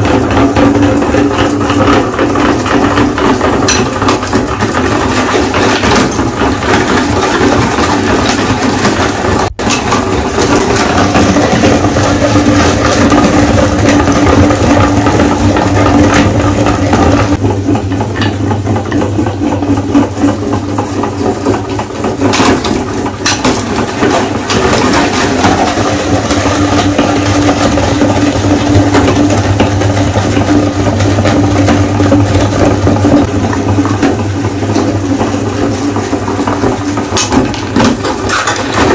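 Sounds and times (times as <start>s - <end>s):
meat grinder motor hum: 0.0s - 38.9s.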